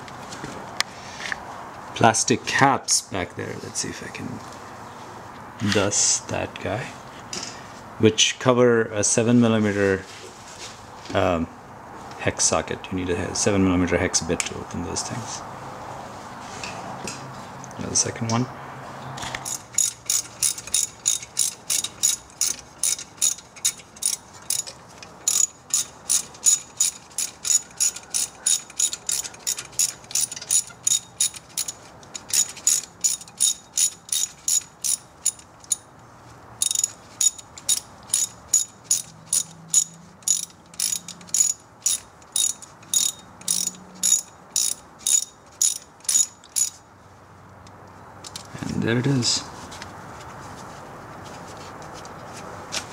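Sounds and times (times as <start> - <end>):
hand ratchet clicking: 19.4 - 35.9, 36.6 - 46.8.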